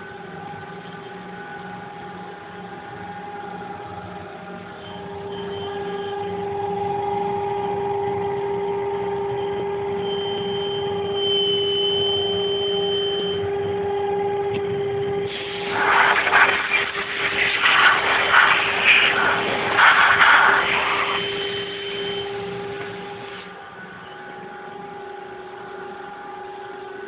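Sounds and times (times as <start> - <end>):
higher whine: 0.0 - 27.0.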